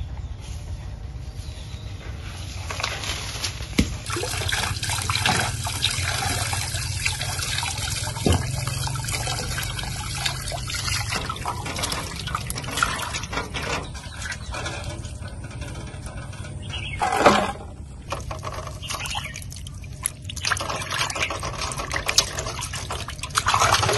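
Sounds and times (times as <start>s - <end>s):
sharp knocks: 3.8s - 4.1s, 8.2s - 8.7s
water running from a tap: 4.0s - 13.3s.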